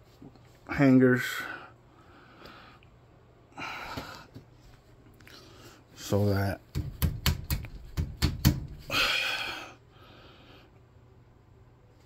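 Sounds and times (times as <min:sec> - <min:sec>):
sharp taps and knocks: 0:06.7 - 0:08.9.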